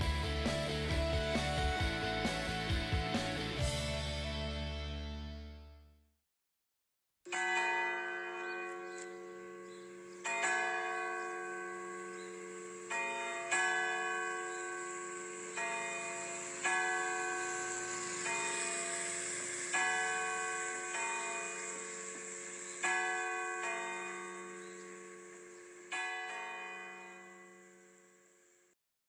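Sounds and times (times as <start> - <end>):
church bell tolling: 7.3 - 28.5.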